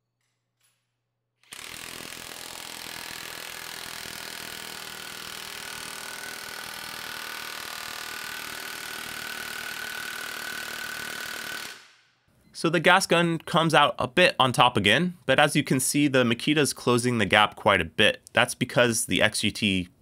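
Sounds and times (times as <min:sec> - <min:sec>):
impact wrench hammering: 0:01.5 - 0:12.0.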